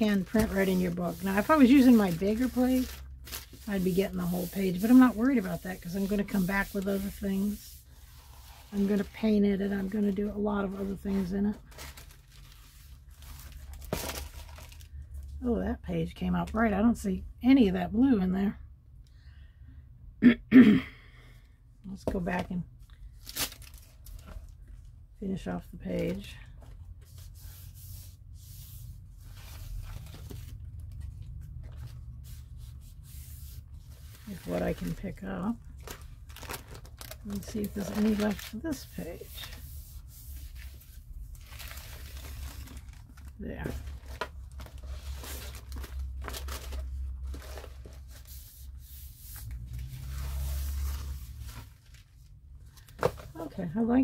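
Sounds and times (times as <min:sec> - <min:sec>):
paper rustling and swishing: 0:00.0 - 0:14.9, 0:27.0 - 0:35.0, 0:35.8 - 0:53.4.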